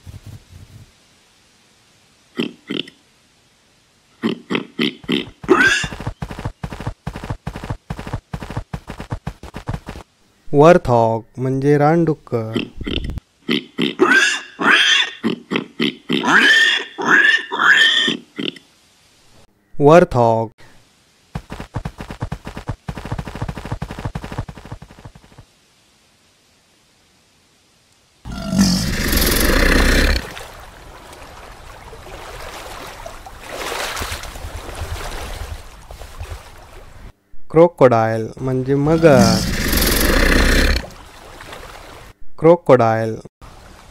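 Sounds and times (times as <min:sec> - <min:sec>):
crocodile growl: 0:28.3 - 0:30.4, 0:38.8 - 0:41.0
warthog grunting: 0:28.3 - 0:30.4, 0:38.8 - 0:41.0
water-like rushing noise: 0:30.1 - 0:37.1, 0:40.8 - 0:42.1.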